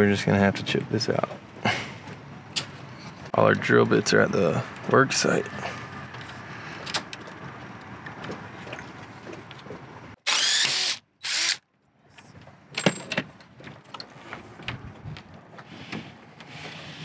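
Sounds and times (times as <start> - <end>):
cordless drill whirring: 10.2 - 11.6.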